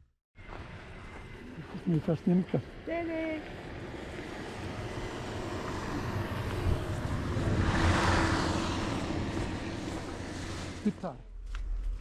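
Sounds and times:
car engine rumble: 0.4 - 12.0
car passing by: 3.5 - 11.2.

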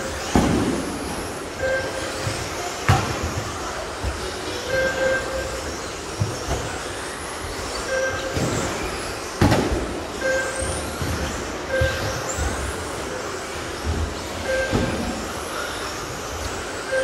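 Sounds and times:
thumps and knocks of trucks: 0.2 - 4.3, 9.4 - 10.3
short electronic beeps: 1.6 - 2.2, 10.2 - 10.7, 14.4 - 14.9.

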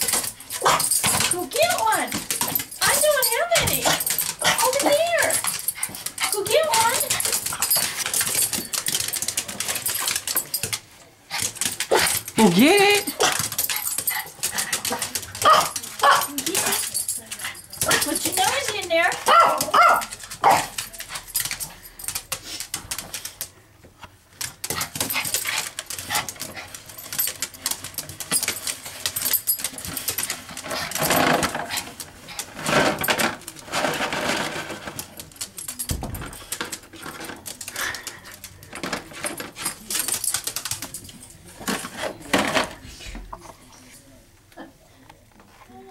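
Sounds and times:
dog noises: 11.3 - 22.6.

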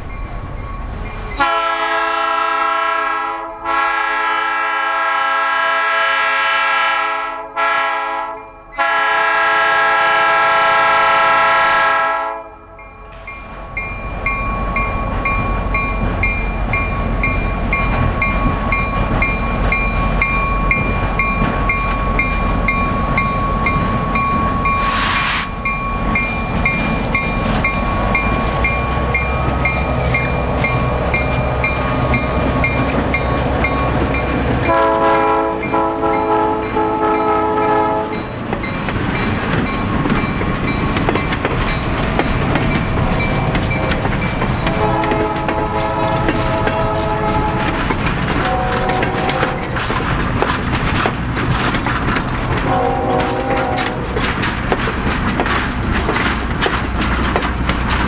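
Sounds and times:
train rail rumble: 0.0 - 58.0
train air horn blowing: 1.4 - 12.7, 24.8 - 25.6, 34.6 - 38.2, 44.8 - 47.8, 48.4 - 49.8, 52.6 - 54.1
brief hiss: 24.8 - 25.6
wheel clicks over rail joints: 38.5 - 58.0.

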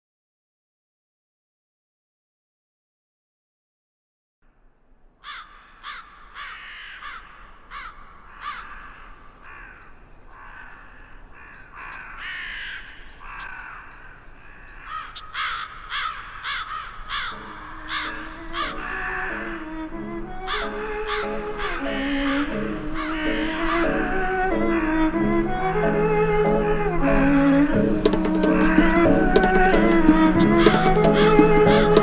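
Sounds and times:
flock of birds calling: 5.2 - 32.0.

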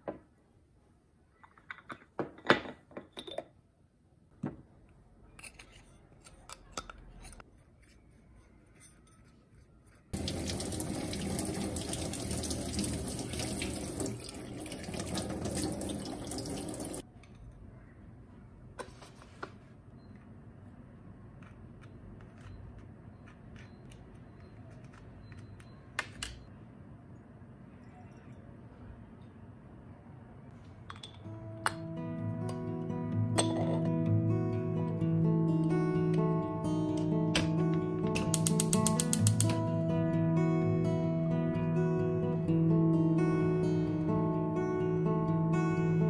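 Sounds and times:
water running from tap: 10.2 - 17.0.

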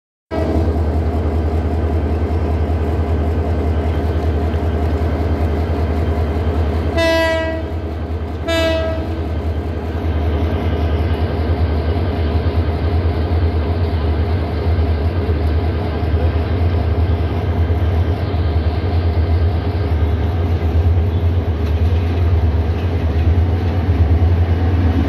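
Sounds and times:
diesel locomotive horn blasts: 6.9 - 9.4.

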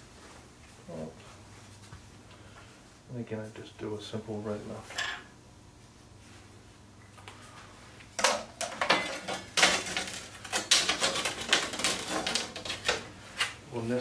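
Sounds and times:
metal trim strips clattering: 8.2 - 13.0.

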